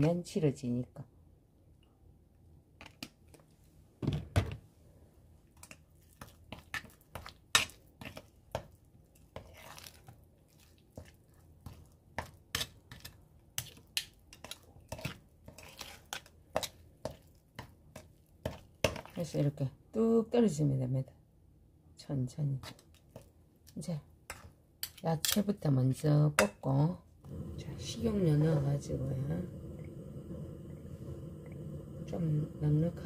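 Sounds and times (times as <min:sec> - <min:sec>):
utensil scraping bowl: 0:13.6 - 0:16.8.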